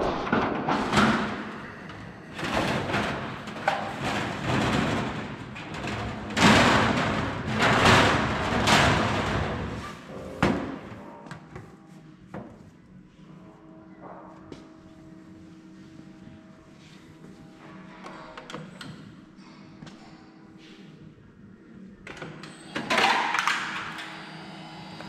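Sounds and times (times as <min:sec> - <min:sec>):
sheet metal flexing and rattling: 0:00.0 - 0:10.9.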